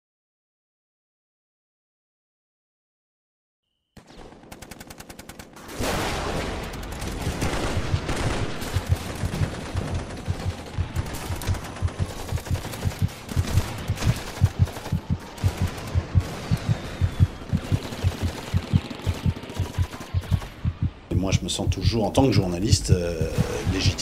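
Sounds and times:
gunfire: 4.0 - 21.0
low regular thumping: 7.8 - 19.3, 20.2 - 22.0, 22.6 - 24.0.

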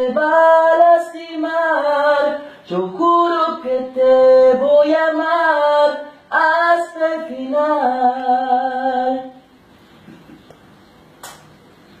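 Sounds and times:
man singing unaccompanied: 0.0 - 9.5.

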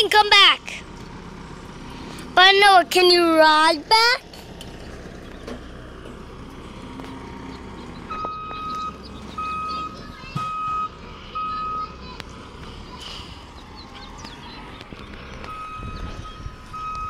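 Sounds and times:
vehicle backup alarm beeps: 8.0 - 12.0, 15.4 - 17.0.

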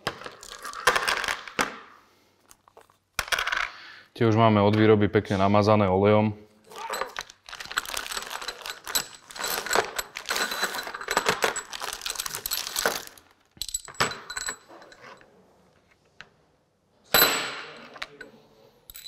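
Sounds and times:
plastic bags crinkling: 6.7 - 13.5.

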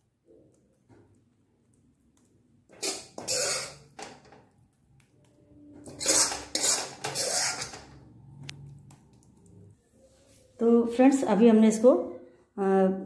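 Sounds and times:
spoon scraping a pan: 2.7 - 4.3, 5.8 - 8.2.

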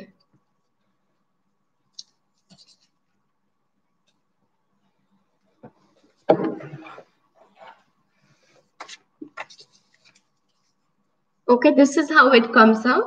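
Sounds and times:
thump on a table: 5.6 - 7.0.

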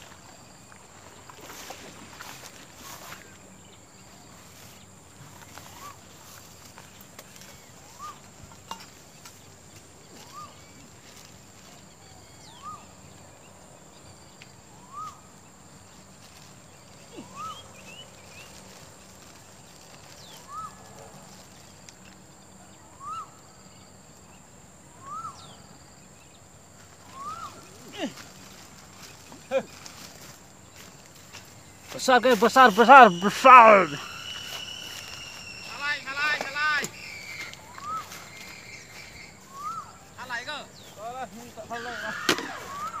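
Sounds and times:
short rising and falling animal call: 41.8 - 43.0.

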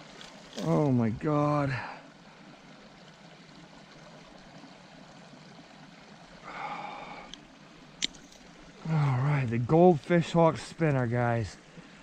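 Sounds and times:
flowing water rushing: 0.0 - 12.0.

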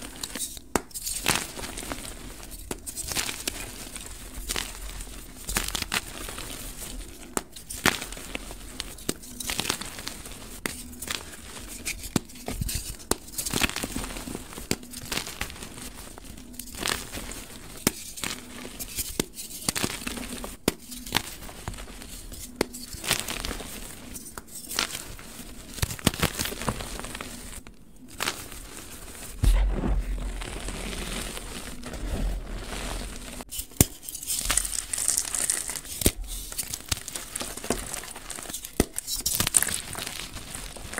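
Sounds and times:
chalk crunching and snapping: 0.0 - 40.9
low thud: 29.4 - 31.0.

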